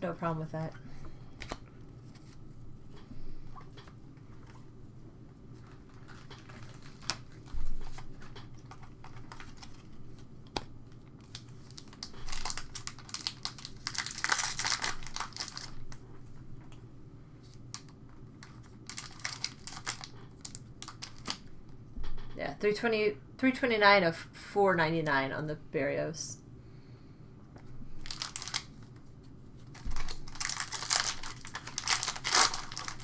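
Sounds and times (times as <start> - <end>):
wrapper crinkling and tearing: 5.6 - 10.2, 11.2 - 16.0, 17.6 - 21.5, 28.0 - 28.9, 29.6 - 33.0.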